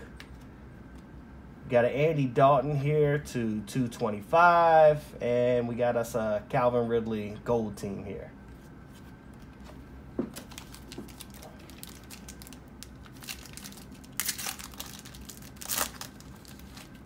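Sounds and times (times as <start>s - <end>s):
foil wrapper tearing and crinkling: 10.4s - 17.0s.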